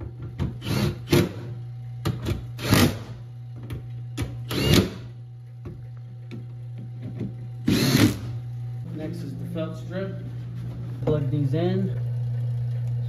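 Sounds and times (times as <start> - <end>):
power driver whirring: 0.6 - 1.5, 4.2 - 5.1, 7.6 - 8.4.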